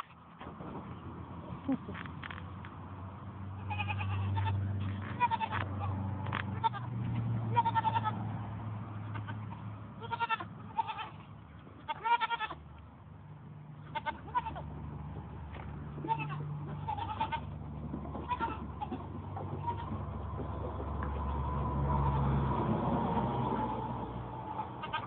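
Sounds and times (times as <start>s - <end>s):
goats bleating: 3.6s - 6.0s, 6.6s - 6.9s, 7.5s - 8.2s, 9.0s - 12.6s, 13.9s - 14.7s, 15.9s - 20.2s, 24.6s - 25.0s.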